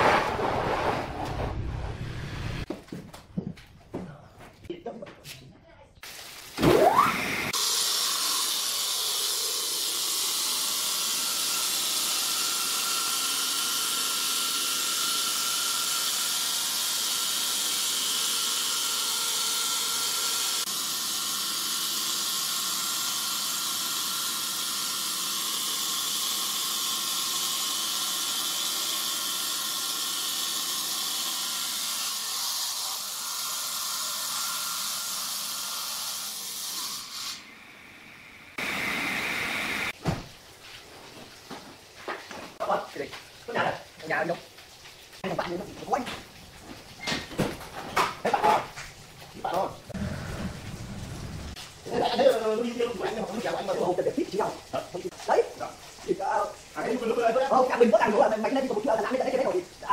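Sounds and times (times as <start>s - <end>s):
saw blade grinding through stone: 7.5s - 37.5s.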